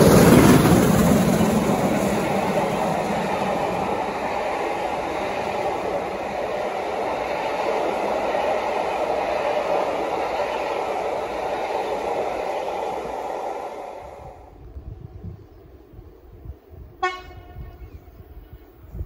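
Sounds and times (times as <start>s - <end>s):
train wheels on rails: 0.0s - 19.0s.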